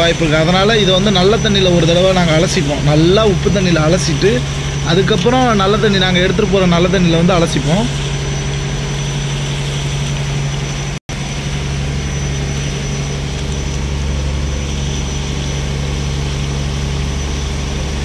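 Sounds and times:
boat engine humming: 0.0s - 18.0s
water gushing from hose: 0.0s - 18.0s.

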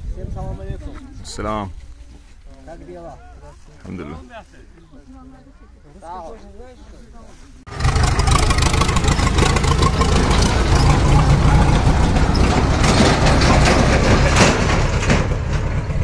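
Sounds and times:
tractor engine rumbling: 6.8s - 16.0s.

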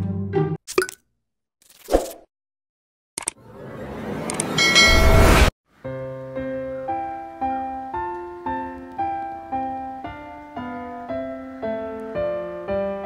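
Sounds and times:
loud rushing noise: 3.4s - 5.5s
piano chords: 3.6s - 13.0s.

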